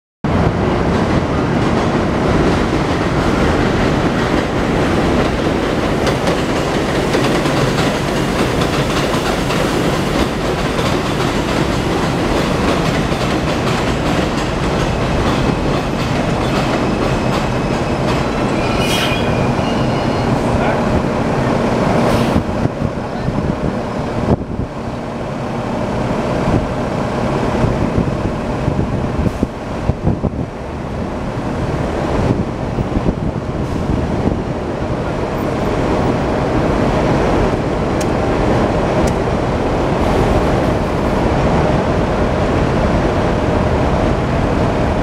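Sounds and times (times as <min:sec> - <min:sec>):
subway train rumbling: 0:00.2 - 0:45.0
wheels clacking over rail joints: 0:02.8 - 0:20.8
high-pitched wheel squeal: 0:18.4 - 0:20.6.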